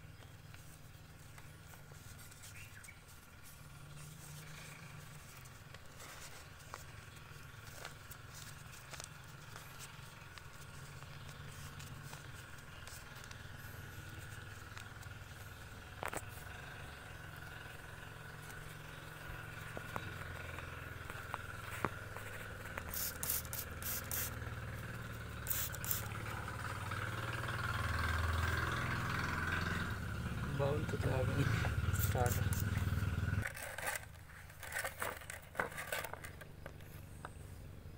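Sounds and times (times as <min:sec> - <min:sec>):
low engine hum: 0:00.0 - 0:33.5, 0:34.2 - 0:37.9
spray bottle squirting: 0:22.8 - 0:24.4, 0:25.4 - 0:26.2, 0:31.9 - 0:32.8.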